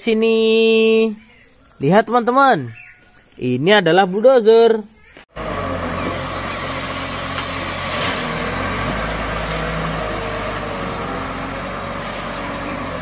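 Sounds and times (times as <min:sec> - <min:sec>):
wheel loader diesel engine: 0:05.3 - 0:13.0.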